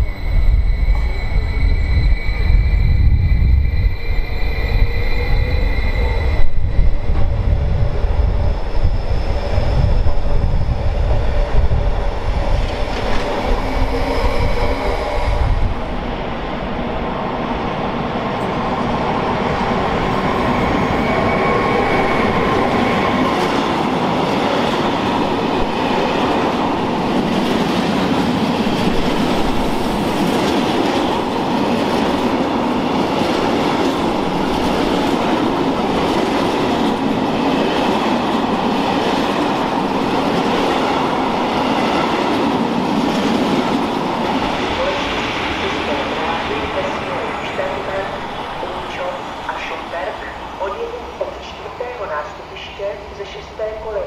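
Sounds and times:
steel wheels rumbling on rails: 0:00.0 - 0:51.6.

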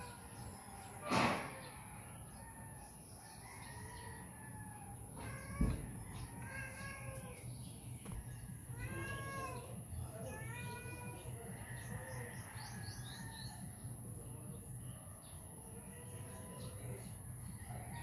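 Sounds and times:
rooster crowing: 0:02.3 - 0:05.0.

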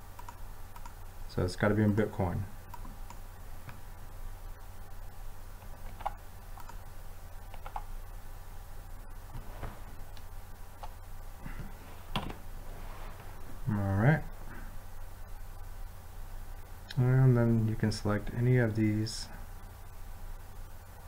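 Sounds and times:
steady low hum: 0:00.0 - 0:21.0
mouse and keyboard clicks: 0:05.6 - 0:06.8.

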